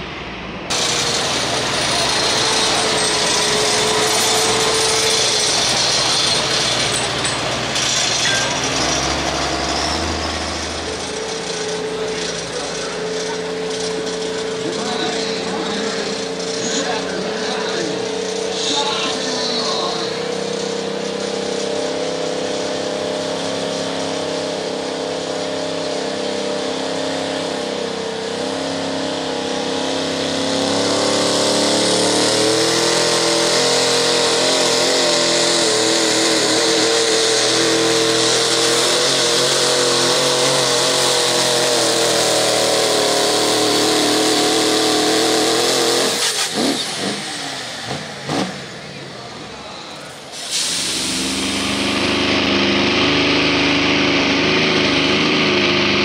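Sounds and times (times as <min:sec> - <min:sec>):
diesel truck engine: 0:00.0 - 0:56.0.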